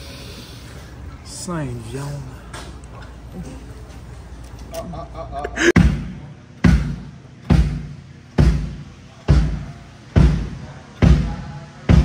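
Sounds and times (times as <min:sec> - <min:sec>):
drum hits with heavy thud: 0:05.8 - 0:12.0.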